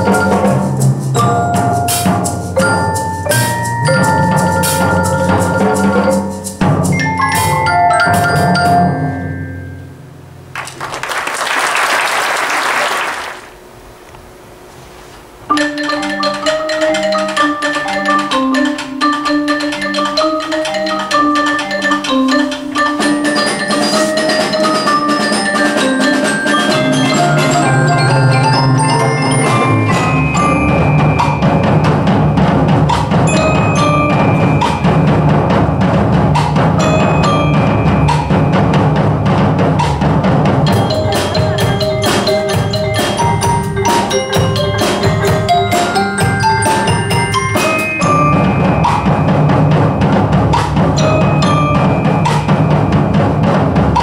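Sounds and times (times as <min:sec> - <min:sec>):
marimbas and vibraphone: 0:00.0 - 0:10.3, 0:15.5 - 0:54.0
low drums: 0:00.0 - 0:10.6, 0:19.6 - 0:54.0
applause: 0:10.5 - 0:13.6.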